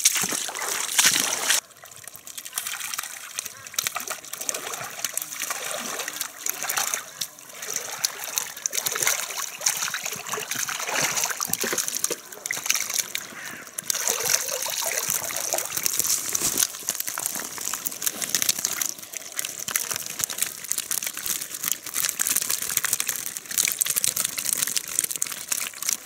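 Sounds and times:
netting crackling and rustling: 0.0s - 26.0s
water draining from net: 0.0s - 26.0s.

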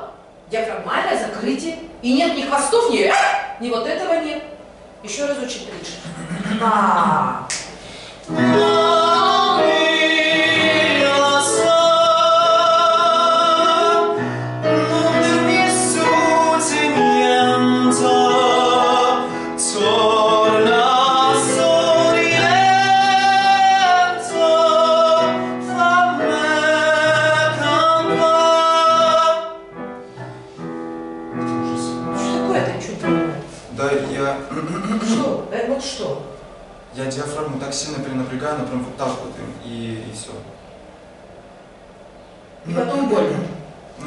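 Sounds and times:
instrumental backing track: 7.7s - 35.3s
person singing with vibrato: 8.3s - 30.7s.

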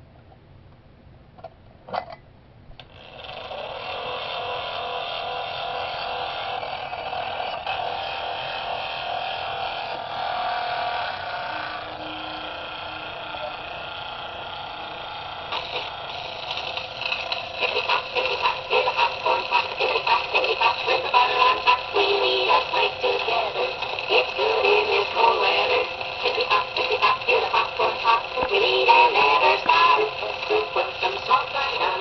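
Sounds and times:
toy phonograph singing with music: 3.0s - 32.0s.

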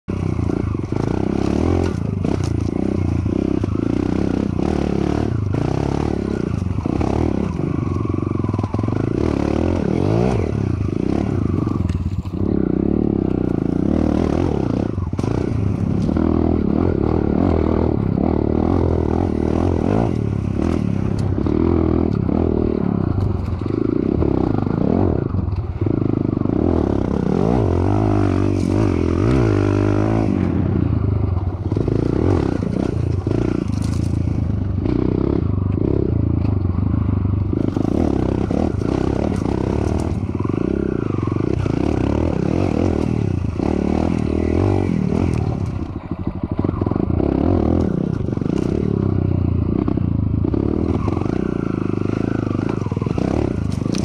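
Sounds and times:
dirt bike engine revving: 0.1s - 54.0s.

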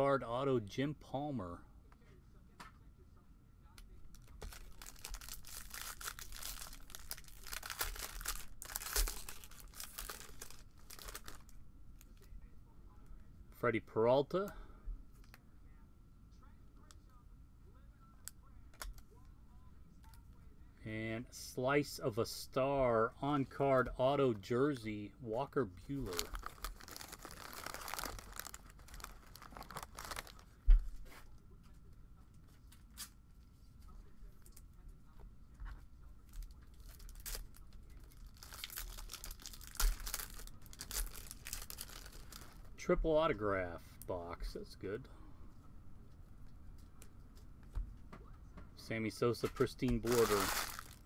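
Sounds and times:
foil wrapper crinkling and tearing: 4.1s - 11.5s, 25.9s - 30.4s, 36.4s - 42.6s, 49.6s - 51.0s.

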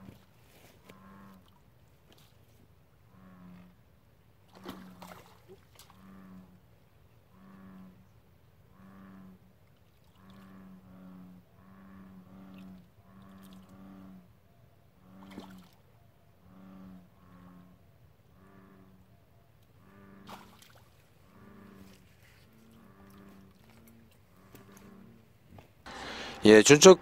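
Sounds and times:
bullfrogs calling: 3.1s - 3.8s, 5.9s - 6.6s, 7.3s - 8.1s, 8.7s - 9.5s, 10.1s - 14.4s, 16.3s - 19.1s, 19.7s - 20.6s, 21.2s - 25.2s.

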